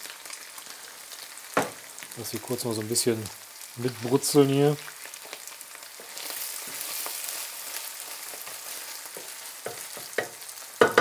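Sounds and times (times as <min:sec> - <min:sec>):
meat sizzling in a frying pan: 0:00.0 - 0:11.0
wooden spatula knocking on pan: 0:01.6 - 0:01.8, 0:09.1 - 0:11.0.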